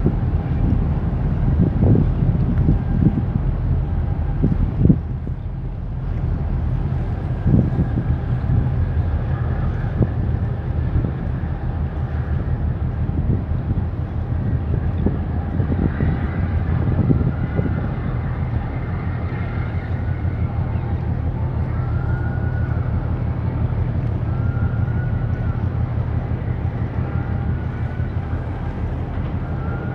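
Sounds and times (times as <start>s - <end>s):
ship diesel engines rumbling: 0.0s - 29.9s
wind buffeting microphone: 0.0s - 29.9s.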